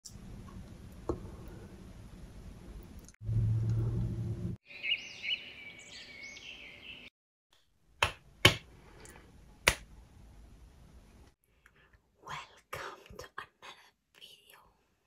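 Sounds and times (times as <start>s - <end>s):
finger snaps: 9.0s - 9.9s.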